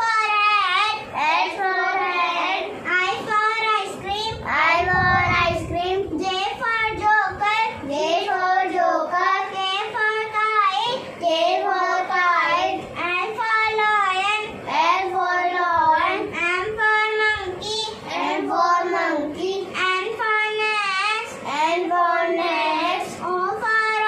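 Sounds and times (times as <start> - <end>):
girl singing a chant: 0.0 - 24.0.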